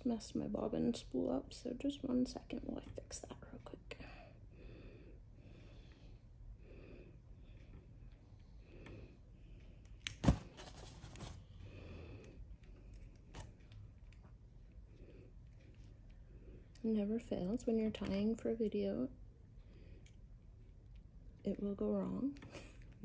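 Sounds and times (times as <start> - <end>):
soft rustling of thread spool: 12.2 - 23.0.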